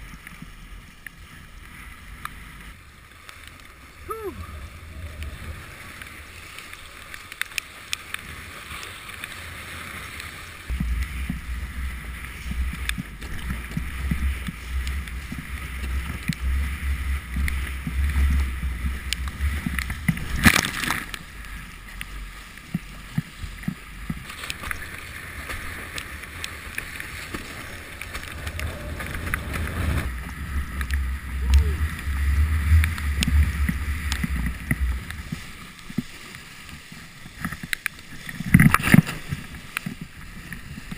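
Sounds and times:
water rushing and spraying: 0.0s - 40.9s
wind buffeting microphone: 4.0s - 6.5s, 10.7s - 20.5s, 26.1s - 35.6s.

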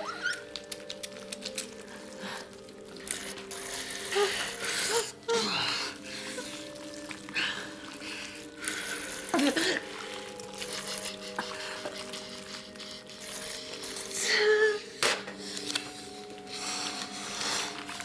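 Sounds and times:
low sustained drone: 0.8s - 18.0s
woman groaning and crying: 4.0s - 10.5s, 14.1s - 15.0s.

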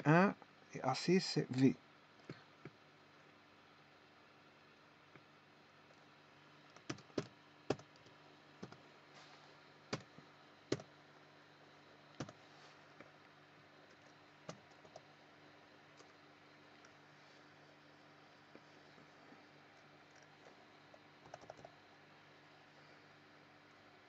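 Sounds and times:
faint steady hum: 0.0s - 24.0s
keyboard keystrokes clicking: 6.8s - 8.8s.

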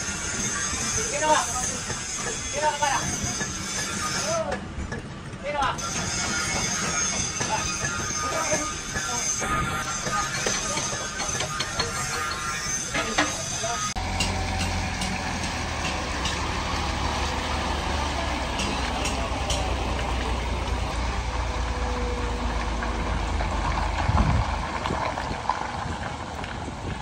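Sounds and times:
truck engine idling: 13.6s - 24.7s.

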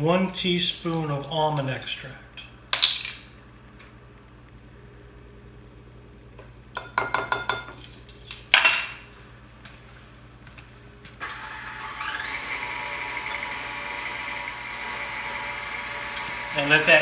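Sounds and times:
metal spoon clinking glassware: 6.8s - 7.8s
stand mixer motor whining: 11.2s - 17.0s.

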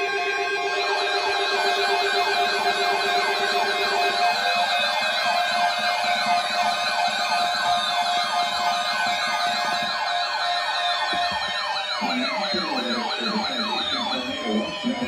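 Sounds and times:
electronic sirens sweeping: 0.0s - 15.0s
lower wavering siren: 0.0s - 15.0s.

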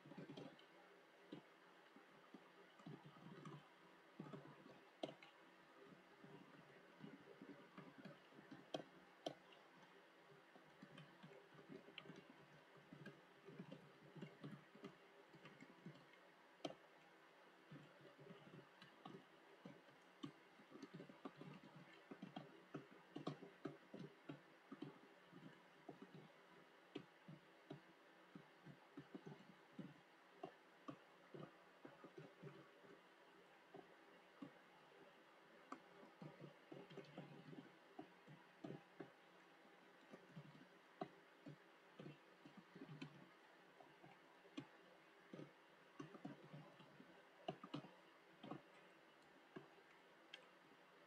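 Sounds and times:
typing on computer keyboard: 0.0s - 0.7s, 17.7s - 33.0s.

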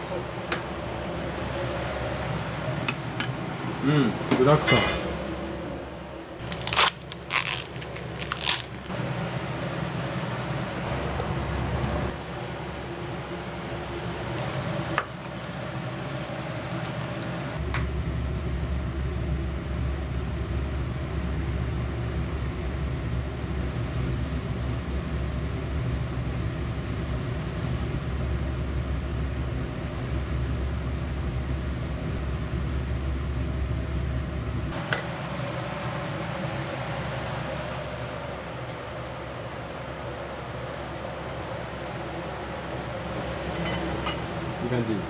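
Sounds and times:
kitchen hum: 0.0s - 17.6s, 34.7s - 45.0s.

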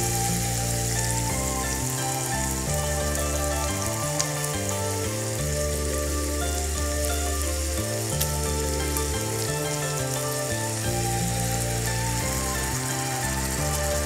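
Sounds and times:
background music with held chords: 0.0s - 14.0s
pork sizzling in a pan: 0.0s - 14.0s.

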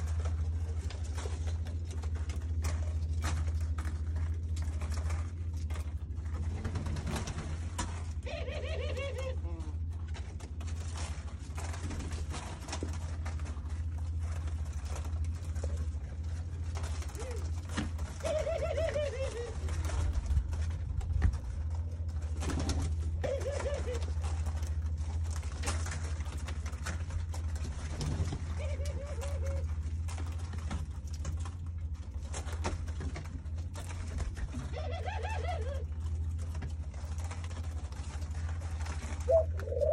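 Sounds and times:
birds tapping on floor: 0.0s - 39.9s
doves shuffling and pecking: 0.0s - 39.9s
steady low hum: 0.0s - 39.9s
dove call: 8.1s - 9.9s, 16.8s - 20.0s, 23.1s - 24.6s, 28.3s - 30.0s, 34.6s - 36.3s, 38.9s - 39.9s.

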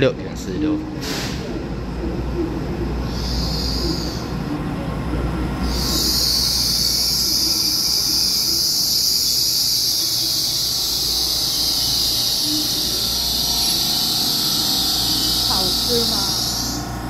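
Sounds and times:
train low rumble: 0.0s - 17.0s
train brakes squealing: 5.7s - 17.0s.

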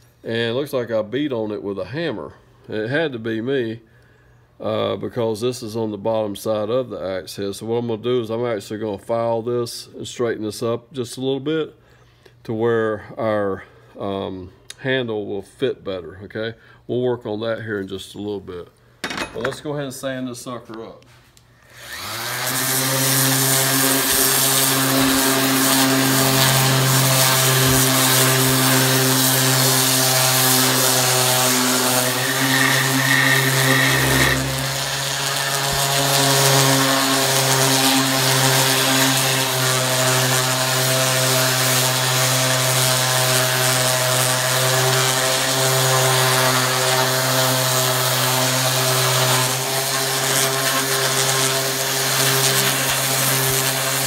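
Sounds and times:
palm sander motor running: 21.7s - 54.0s.

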